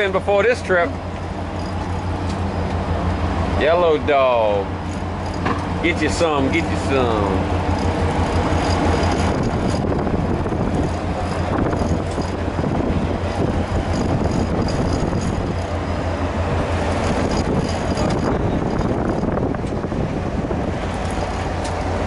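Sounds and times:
outboard boat motors droning: 0.0s - 22.0s.

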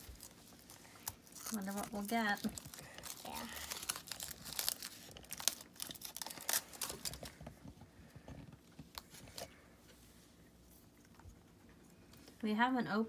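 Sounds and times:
foil wrapper crinkling: 0.0s - 7.6s.

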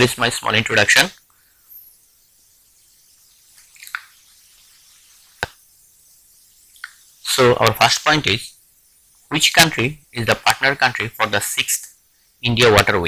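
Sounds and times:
soft clicks and smacks: 6.8s - 7.0s.

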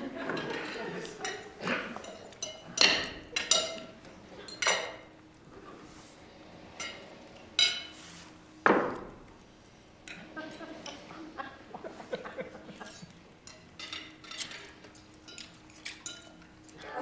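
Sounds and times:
cutlery clinking on plates: 0.2s - 5.1s, 6.7s - 8.0s, 12.4s - 16.8s.

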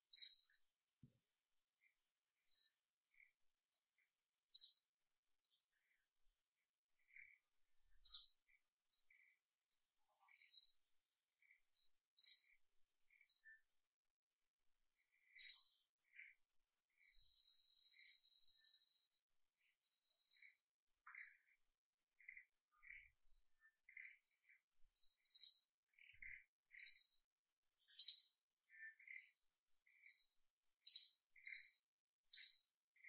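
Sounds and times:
small birds chirping: 0.0s - 33.0s
buzzy bird trill: 0.1s - 0.5s, 8.0s - 9.3s, 22.2s - 27.2s, 27.8s - 33.0s.

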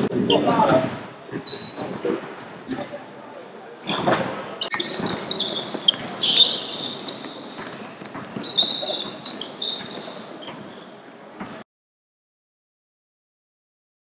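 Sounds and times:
sneakers squeaking on court: 0.2s - 11.6s
basketball bouncing on wooden floor: 4.0s - 10.7s.

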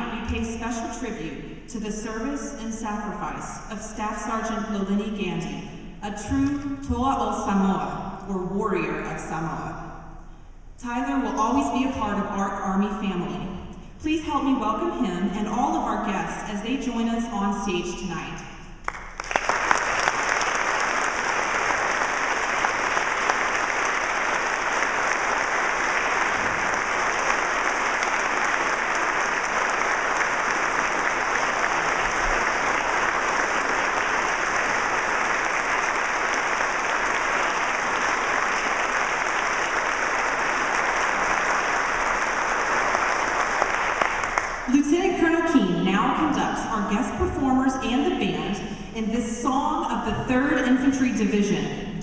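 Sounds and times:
audience applauding: 18.8s - 44.7s.

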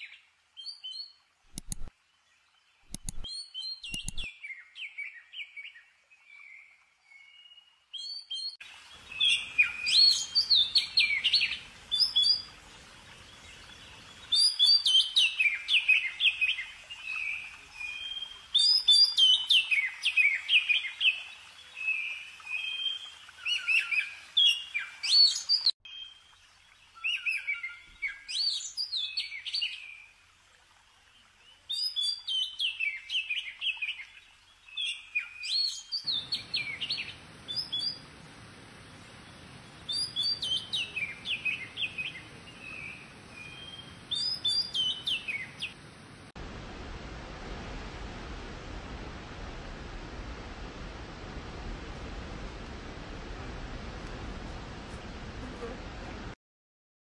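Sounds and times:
songbird singing: 0.0s - 30.1s, 31.0s - 46.2s.

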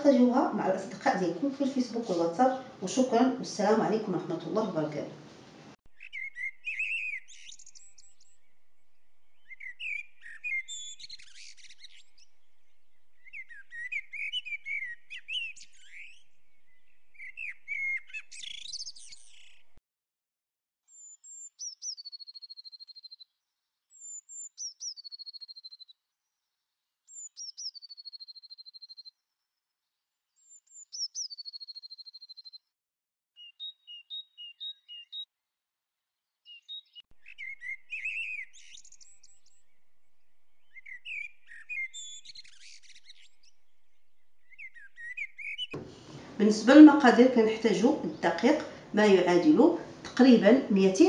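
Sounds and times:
bird chirps and twittering: 5.9s - 19.8s, 20.9s - 23.3s, 23.9s - 25.9s, 27.1s - 29.1s, 30.3s - 32.6s, 33.4s - 35.3s, 36.4s - 46.1s
birdsong call and trill: 5.9s - 19.8s, 20.9s - 32.7s, 33.4s - 35.3s, 36.2s - 51.0s.

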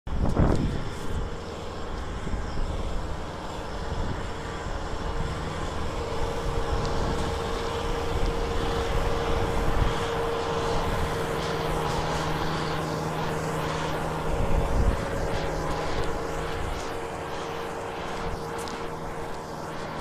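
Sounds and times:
steady whine: 0.1s - 20.0s
tractor diesel engine under load: 1.0s - 20.0s.

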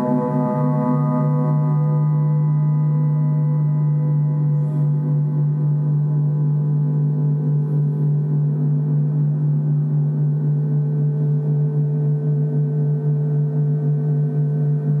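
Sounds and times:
gongs droning: 0.0s - 10.7s.

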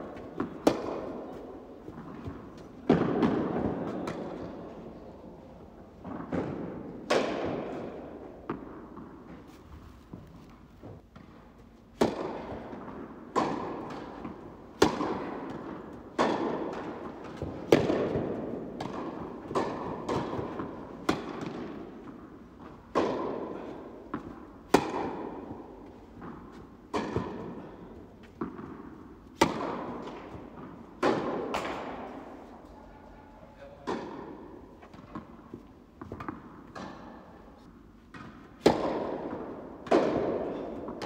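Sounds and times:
racket hitting tennis ball: 0.0s - 4.7s, 6.0s - 32.5s, 33.8s - 41.0s
ball bouncing on court: 12.0s - 22.3s.

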